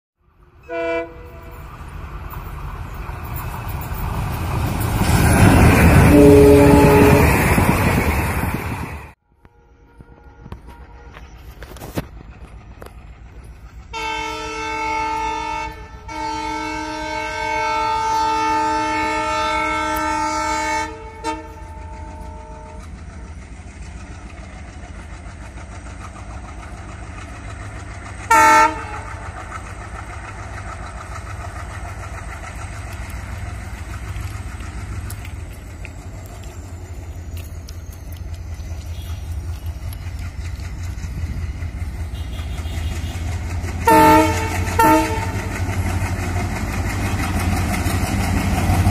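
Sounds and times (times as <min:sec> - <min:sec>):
locomotive engine rumbling: 0:00.2 - 0:48.9
locomotive horn: 0:00.6 - 0:01.6, 0:05.8 - 0:07.8, 0:09.3 - 0:11.9, 0:13.9 - 0:22.9, 0:28.3 - 0:29.2, 0:38.8 - 0:39.7, 0:42.0 - 0:45.6.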